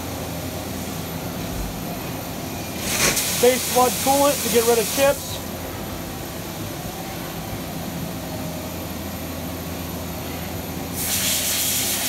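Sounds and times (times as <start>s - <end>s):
machine hum: 0.0s - 11.0s
coolant spraying hiss: 2.8s - 5.4s, 11.0s - 12.0s.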